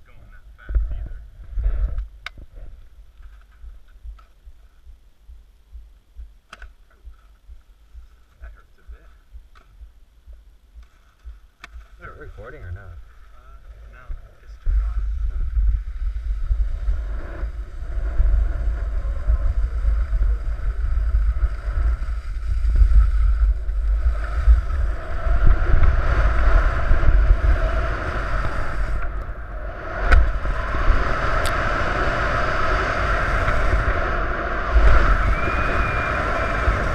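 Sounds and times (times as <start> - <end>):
wind buffeting microphone: 0.3 - 6.4, 13.7 - 36.9
skis sliding over packed snow: 11.8 - 29.2, 29.8 - 36.9.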